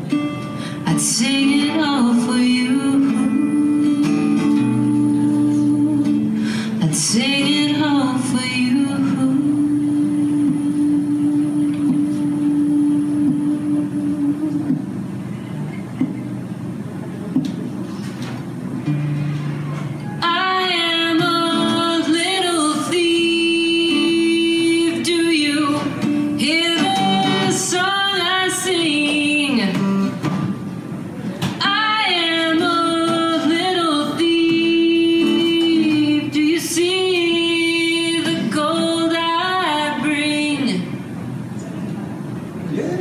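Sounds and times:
acoustic guitar strumming: 0.0 - 41.5
woman singing: 0.4 - 15.0, 20.2 - 30.2, 31.5 - 41.0.

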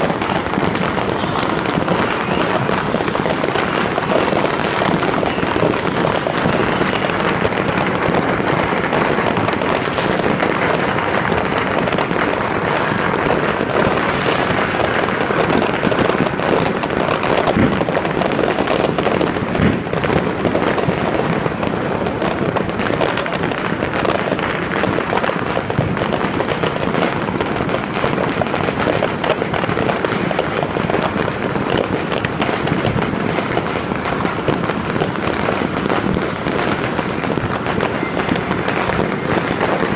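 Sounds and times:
fireworks and firecrackers popping: 0.0 - 39.9.

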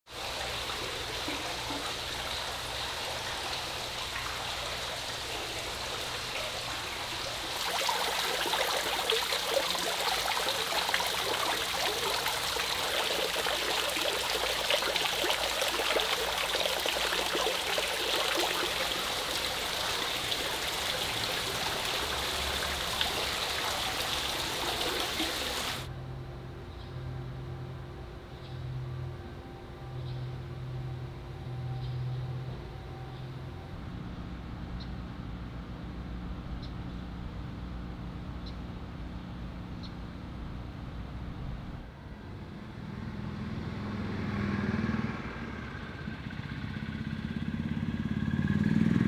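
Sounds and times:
fountain water splashing: 0.1 - 25.9.

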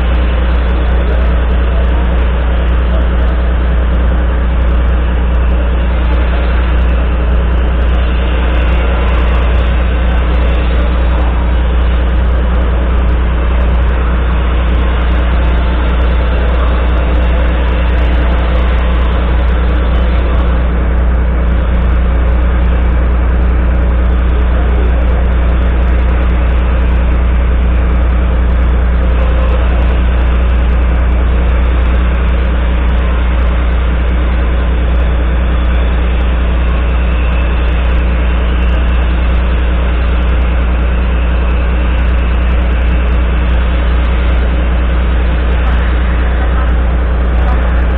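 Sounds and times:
diesel truck engine idling: 0.0 - 47.9.

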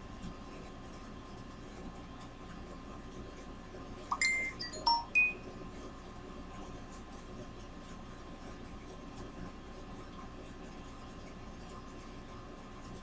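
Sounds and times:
faint steady hum: 3.8 - 5.8
chime-like notes: 4.1 - 5.4.

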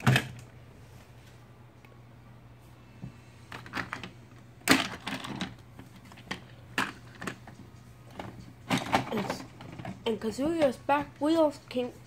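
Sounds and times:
plastic toy trains clattering: 3.5 - 10.8.

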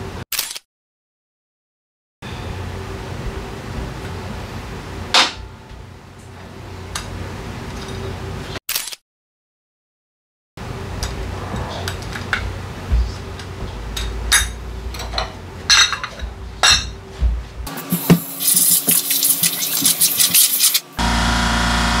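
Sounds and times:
hiss with fast rattling: 17.8 - 21.0.

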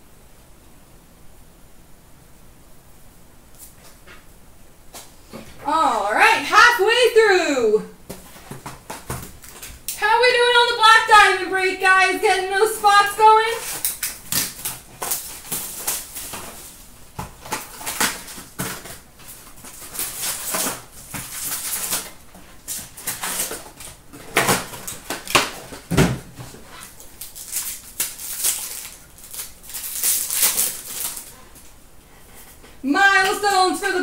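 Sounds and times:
card wrappers crinkling and rustling: 8.1 - 9.9, 12.6 - 31.8.

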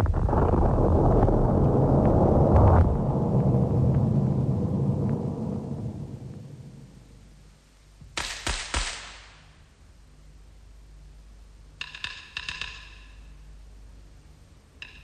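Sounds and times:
loud crashes: 0.0 - 7.3.

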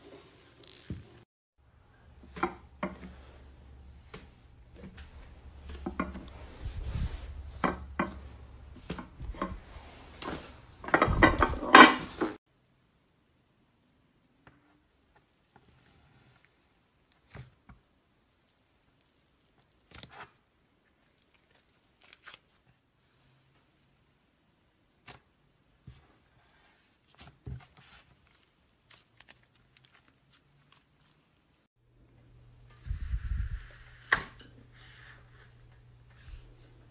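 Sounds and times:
hand squishing slime crackling: 20.8 - 22.8, 27.1 - 31.6.

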